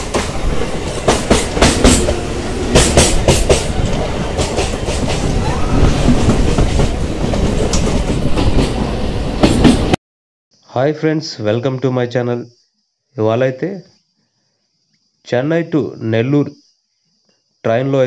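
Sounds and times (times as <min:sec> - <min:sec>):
train rumbling on rails: 0:00.0 - 0:10.0
wheels clacking over rail joints: 0:00.0 - 0:10.0.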